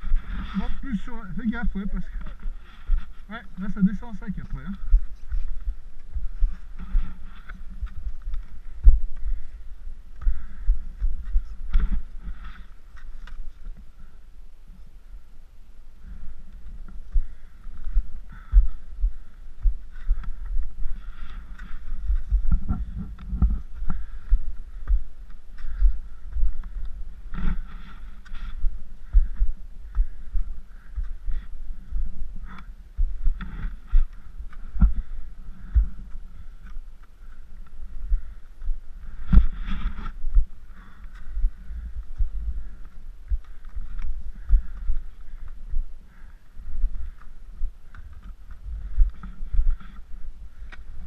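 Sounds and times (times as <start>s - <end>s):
skis and poles crunching snow: 0.0s - 9.6s, 11.2s - 14.2s, 19.9s - 24.2s, 25.4s - 29.1s, 30.7s - 38.4s, 39.0s - 46.4s
wind rumble on microphone: 15.9s - 51.0s.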